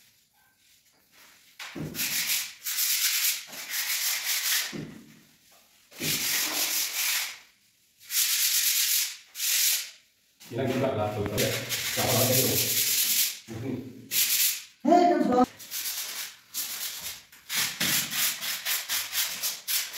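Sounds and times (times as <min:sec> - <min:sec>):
sandpaper rubbing on putty: 0:02.0 - 0:04.8, 0:06.0 - 0:07.4, 0:08.0 - 0:09.9, 0:10.7 - 0:13.4, 0:14.1 - 0:14.6, 0:15.6 - 0:19.9.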